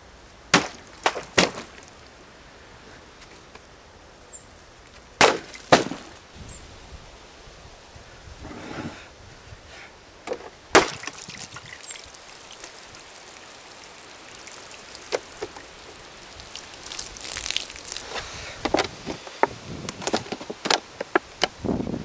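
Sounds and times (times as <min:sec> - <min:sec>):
water splashing from jug: 0:10.8 - 0:18.2.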